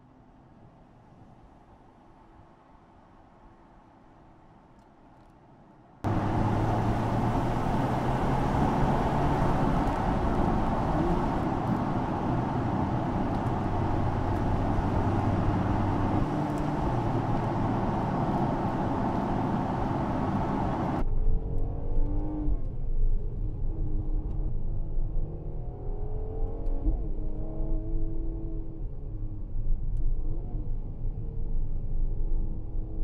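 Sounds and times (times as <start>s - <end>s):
car engine driving: 6.0s - 22.8s.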